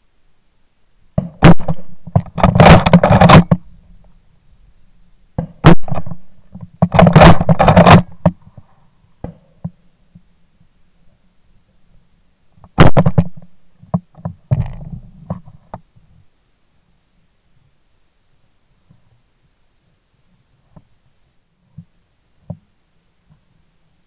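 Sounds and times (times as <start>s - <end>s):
loud shotgun bangs: 1.2s - 3.6s, 5.4s - 6.2s, 7.0s - 8.2s, 12.8s - 13.3s
rustling and gun handling noise: 1.3s - 4.2s, 5.5s - 11.2s.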